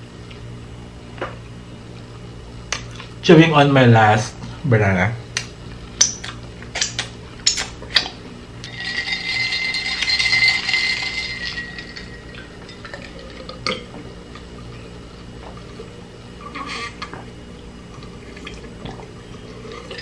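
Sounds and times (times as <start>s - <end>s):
chewing clicks: 5.4s - 8.2s.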